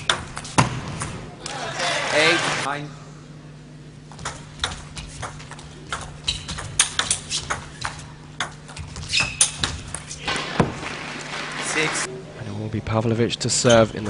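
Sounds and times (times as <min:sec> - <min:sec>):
short squeaks: 0:06.2 - 0:07.8, 0:09.0 - 0:10.2.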